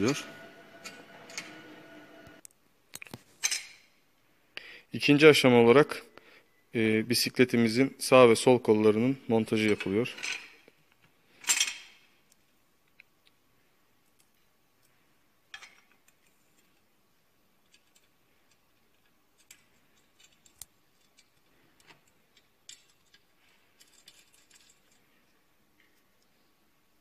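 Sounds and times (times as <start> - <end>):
small metal clicks: 17.6 - 25.4.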